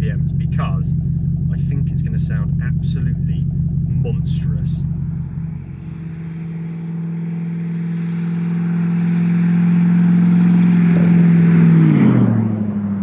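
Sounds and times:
straight-piped car engine driving past: 4.8s - 13.0s.

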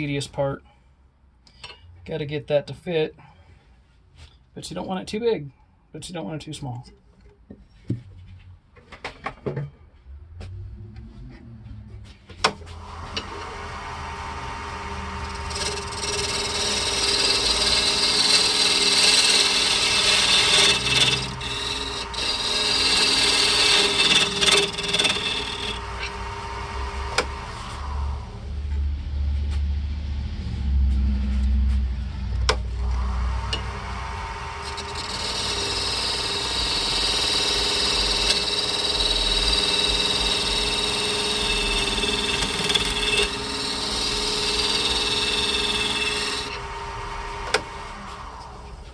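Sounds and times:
low lathe hum: 10.7s - 48.9s
lathe cutter scraping wood: 12.7s - 28.3s, 32.5s - 48.9s.

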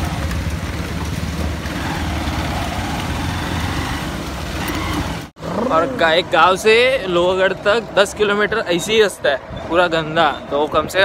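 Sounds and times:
wind and road noise on microphone: 0.0s - 11.0s.

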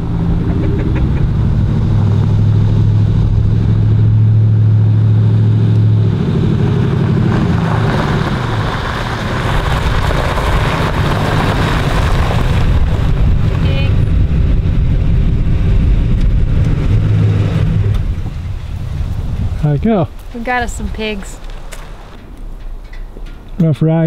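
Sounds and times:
truck engine drone: 0.0s - 23.6s
tyres crunching on gravel: 6.6s - 14.1s, 18.0s - 23.7s.

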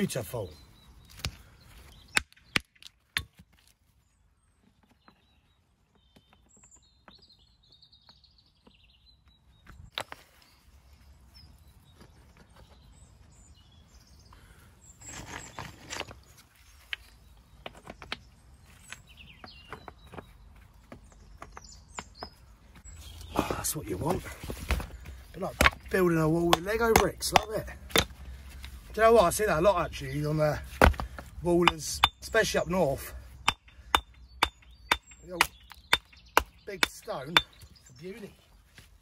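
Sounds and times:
stones scraping together: 15.0s - 18.2s
hand tool knocking on stone: 26.5s - 28.1s.

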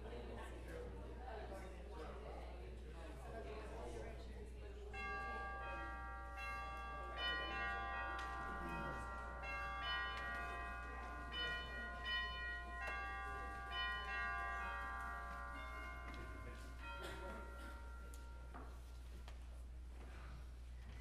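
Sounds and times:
bell chimes playing slow melody: 5.0s - 19.2s.

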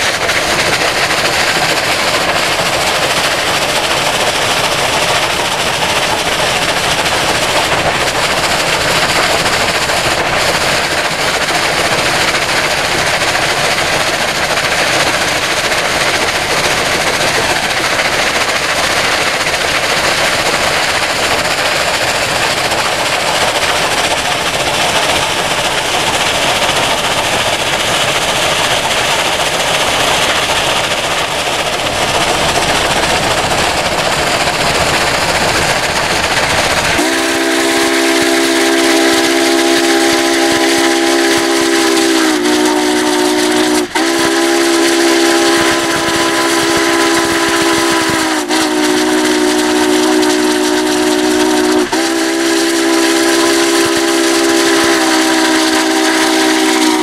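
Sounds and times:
steam chime whistle: 37.0s - 57.0s.

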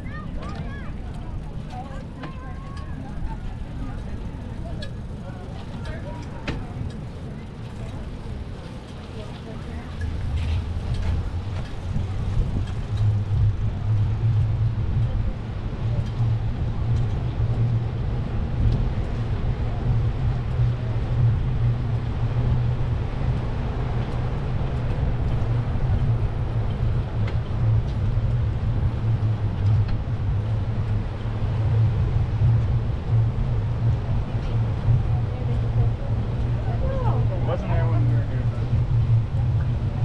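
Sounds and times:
bicycle riding noise: 0.0s - 40.0s
wind buffeting microphone: 9.9s - 40.0s.

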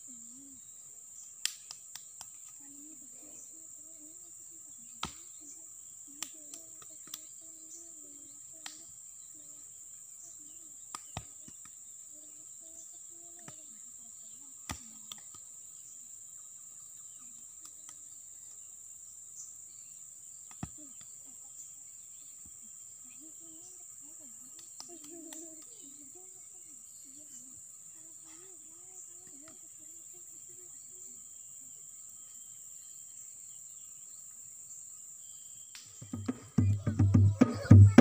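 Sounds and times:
sharp slaps or clicks: 1.4s - 2.6s.

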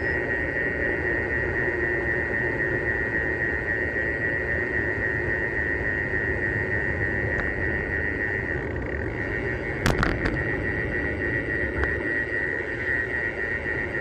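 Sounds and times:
steady high whine: 0.0s - 14.0s
wind noise: 0.0s - 14.0s
bike road rumble: 6.3s - 13.0s.

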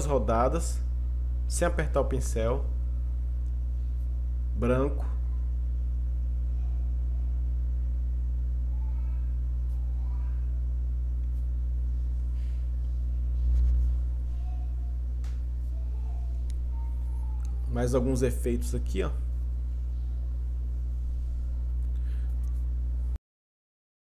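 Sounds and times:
steady low hum: 0.0s - 23.2s
faint voice: 8.6s - 10.7s.

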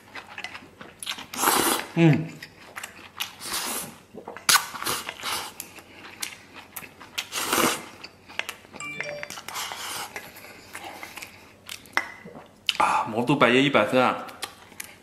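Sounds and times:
slurping and chewing food: 0.0s - 8.6s, 10.7s - 12.8s.

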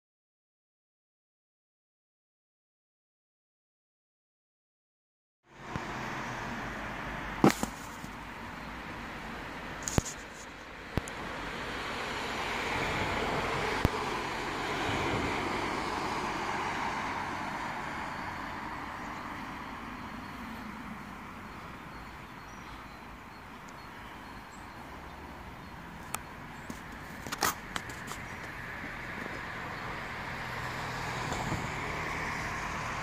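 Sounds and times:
vehicle passing: 5.5s - 7.4s, 11.3s - 22.2s, 24.2s - 33.0s
low traffic hum: 5.5s - 33.0s.

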